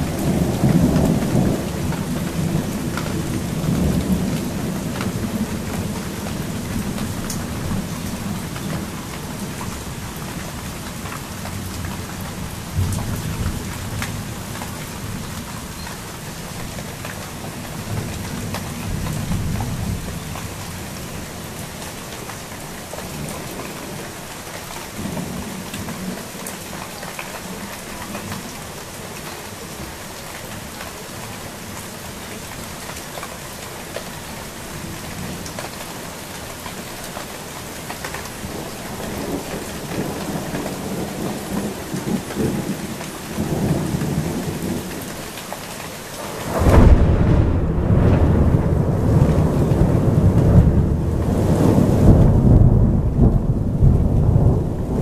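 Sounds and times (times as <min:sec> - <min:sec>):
steady rain falling: 0:00.0 - 0:55.0
thunder rumbling: 0:46.2 - 0:55.0.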